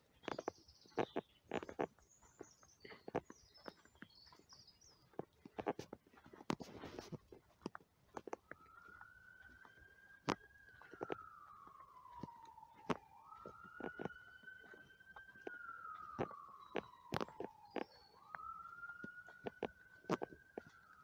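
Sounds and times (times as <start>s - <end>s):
footsteps crunching in snow: 0.0s - 21.0s
siren wailing: 6.4s - 21.0s.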